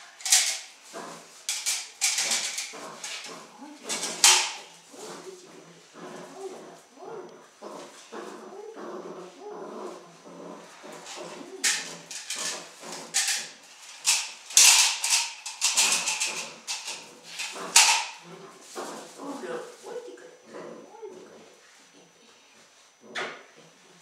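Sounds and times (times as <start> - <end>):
puppy growling and whining: 4.9 - 13.0, 16.4 - 22.2.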